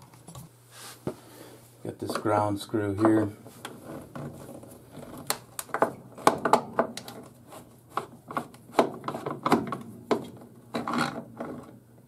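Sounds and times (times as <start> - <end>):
wiring rubbing and scraping: 7.1 - 9.5.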